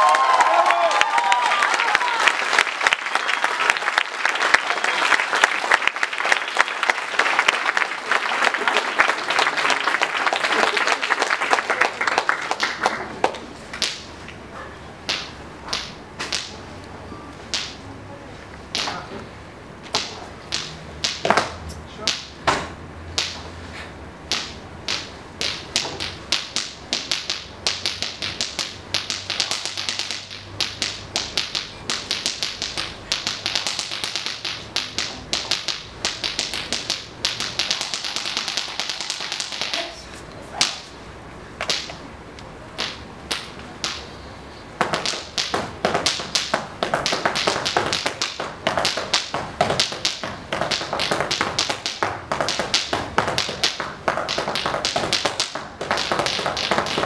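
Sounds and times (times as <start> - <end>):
rhythmic foot stamping on floor: 44.8 - 57.0.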